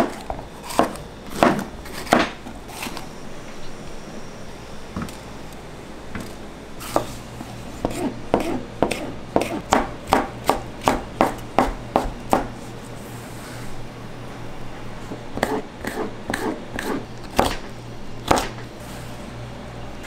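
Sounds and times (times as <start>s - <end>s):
knife chopping on cutting board: 0.0s - 2.4s, 7.8s - 12.5s, 15.4s - 18.6s.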